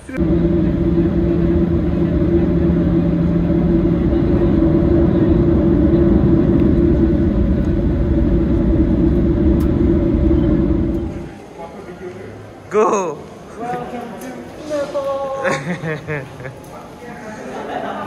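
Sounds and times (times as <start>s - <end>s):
vehicle rumble: 0.0s - 11.4s
low hum: 0.0s - 11.6s.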